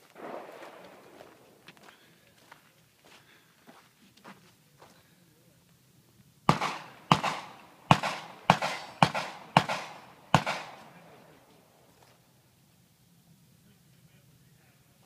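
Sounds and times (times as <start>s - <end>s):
gunshots with echo: 0.0s - 1.6s, 6.5s - 11.3s.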